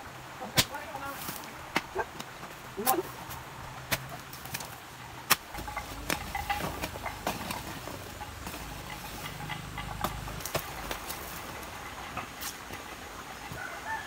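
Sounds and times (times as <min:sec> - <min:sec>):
loosened earth crumbling: 0:03.3 - 0:12.9.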